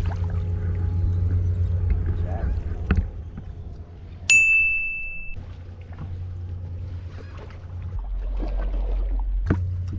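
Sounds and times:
boat engine idling: 0.0s - 8.1s
high steady tone: 4.3s - 5.4s.

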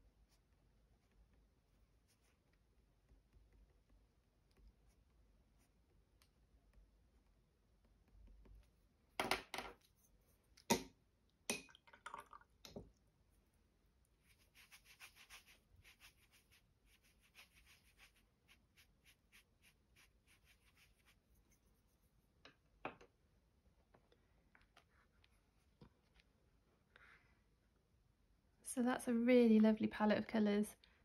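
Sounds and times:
paintbrush scrubbing on paper: 0.2s - 2.5s, 13.3s - 22.2s.

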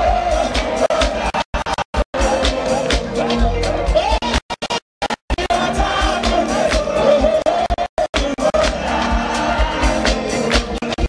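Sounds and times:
gospel band playing: 0.0s - 4.8s, 5.4s - 11.0s
man singing into a microphone: 5.4s - 11.0s.

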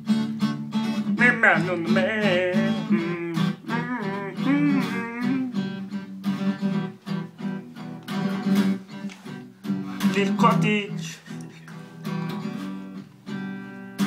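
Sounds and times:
acoustic guitar strumming: 0.0s - 14.0s
person singing wordless melody: 1.1s - 5.8s, 10.0s - 11.8s.

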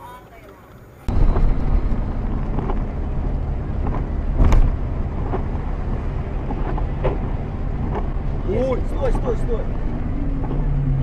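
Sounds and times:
road and tyre noise: 0.0s - 11.0s.

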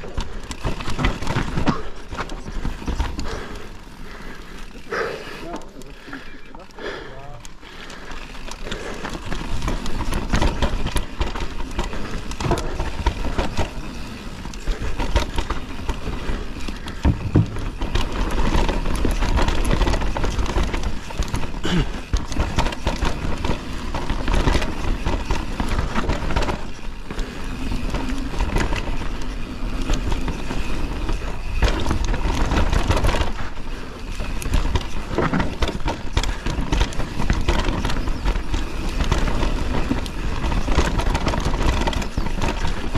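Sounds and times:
bike rattling and knocking: 0.0s - 42.9s
bike tyres rumbling over dirt: 0.0s - 42.9s.

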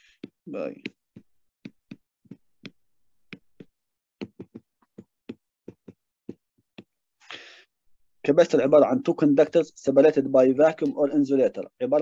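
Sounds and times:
stylus tapping on tablet: 0.0s - 7.0s.

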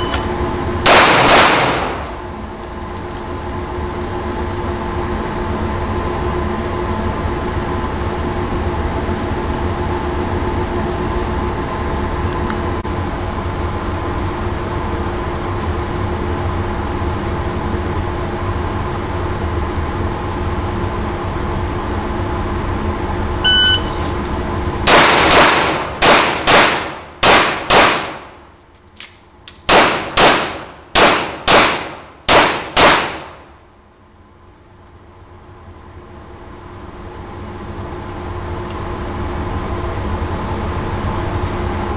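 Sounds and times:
electronic timer beep: 0.0s - 0.2s, 23.4s - 24.0s
ventilation hum: 0.0s - 41.9s
handgun shots: 0.9s - 2.4s, 24.9s - 28.4s, 29.7s - 33.6s.

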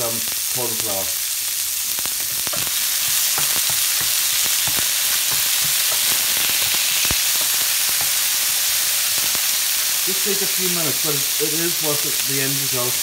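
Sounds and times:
meat sizzling in a frying pan: 0.0s - 13.0s
taps and pops: 2.0s - 8.2s
spatula knocking on pan: 2.2s - 8.2s.

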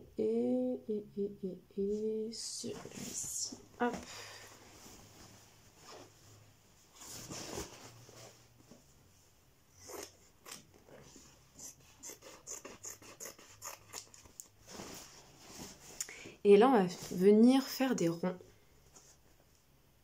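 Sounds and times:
cloth rustling: 2.6s - 9.1s, 14.5s - 16.0s.

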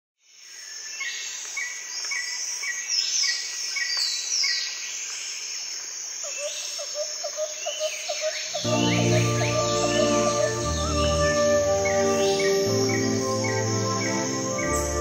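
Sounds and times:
high insect drone: 5.4s - 15.0s
low rapid chirping: 8.4s - 15.0s.

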